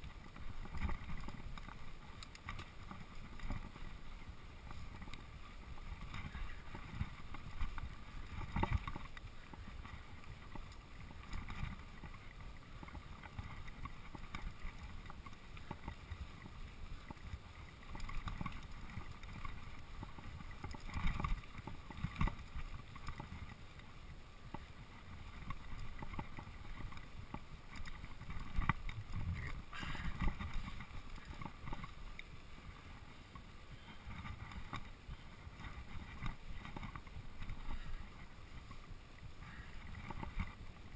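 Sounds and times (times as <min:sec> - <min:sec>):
bike rattling and knocking: 0:00.0 - 0:23.5, 0:24.4 - 0:32.6
wind on microphone: 0:25.1 - 0:32.0.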